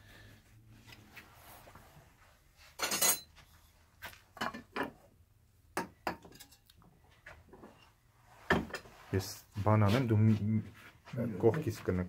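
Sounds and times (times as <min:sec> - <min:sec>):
scraping clatter on bench: 0:07.6 - 0:09.0.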